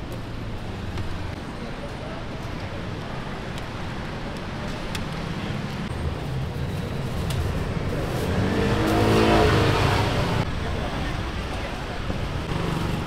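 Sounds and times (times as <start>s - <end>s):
street traffic rumble: 0.0s - 13.0s
vehicle engine: 2.8s - 13.0s.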